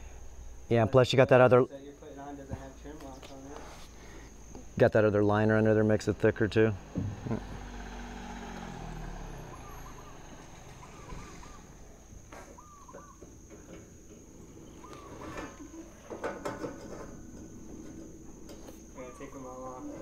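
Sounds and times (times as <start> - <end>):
high insect drone: 0.0 - 20.0
low engine-like hum: 1.7 - 20.0
short bird calls: 9.2 - 13.4, 14.6 - 16.1.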